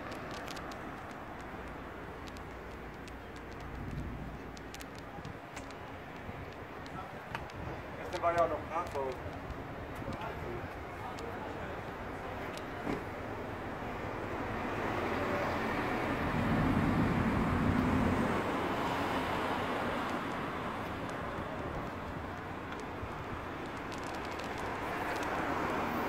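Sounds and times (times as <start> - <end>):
traffic noise: 0.0 - 26.0
vehicle passing: 14.5 - 22.6.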